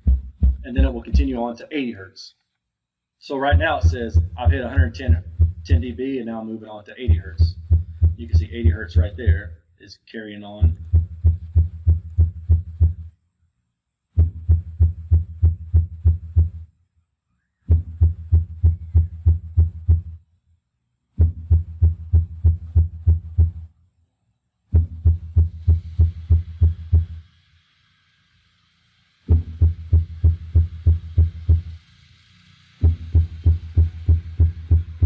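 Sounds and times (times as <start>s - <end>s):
subwoofer low tone bursts: 0.0s - 1.5s, 3.3s - 6.0s, 7.0s - 9.5s, 10.6s - 13.1s, 14.1s - 16.7s, 17.7s - 20.2s, 21.2s - 23.7s, 24.7s - 27.2s, 29.3s - 31.8s, 32.8s - 35.0s.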